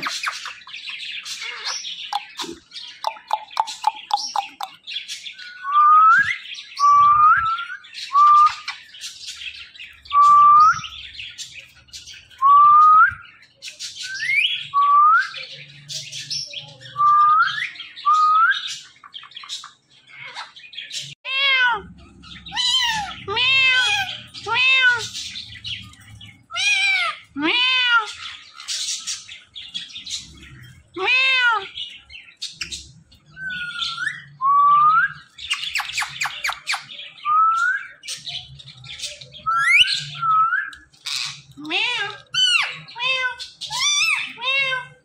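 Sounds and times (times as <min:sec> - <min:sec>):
parrots chirping and squawking: 0:00.0 - 0:05.6, 0:07.8 - 0:12.4, 0:15.4 - 0:45.0
drawn-out meow-like calls: 0:21.2 - 0:21.9, 0:22.5 - 0:25.2, 0:26.5 - 0:28.3, 0:30.9 - 0:31.8, 0:41.6 - 0:45.0.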